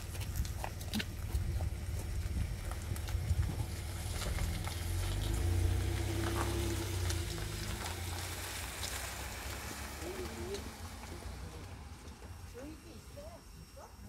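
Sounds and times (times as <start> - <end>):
wind rumble on microphone: 0.0 - 8.1.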